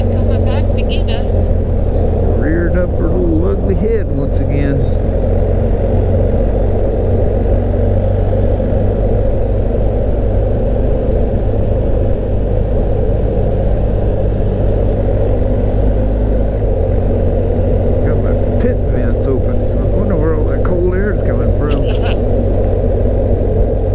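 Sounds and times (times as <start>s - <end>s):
motorcycle engine cruising: 0.0s - 23.9s
wind and road noise: 0.0s - 23.9s.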